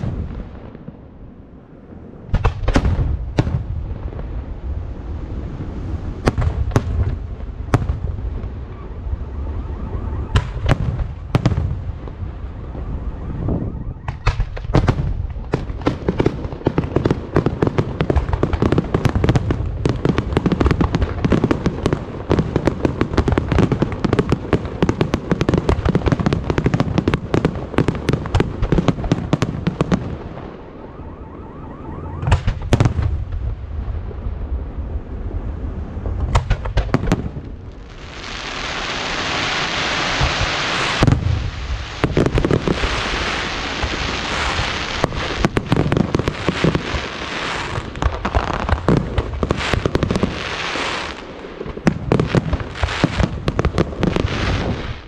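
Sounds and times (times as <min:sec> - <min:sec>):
firework bangs and crackling: 0:00.0 - 0:01.4, 0:02.0 - 0:31.1, 0:32.0 - 0:55.0
firework shells booming: 0:14.1 - 0:30.3, 0:32.2 - 0:33.5.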